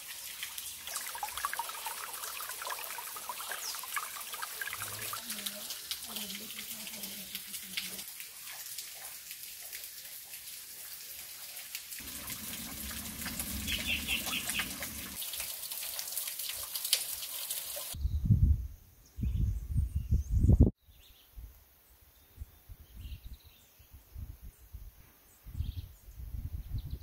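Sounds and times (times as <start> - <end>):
waterfall trickling into pool: 0.0 - 18.0
bird notes: 12.1 - 15.2
wind buffeting microphone: 18.0 - 20.7, 25.5 - 27.0.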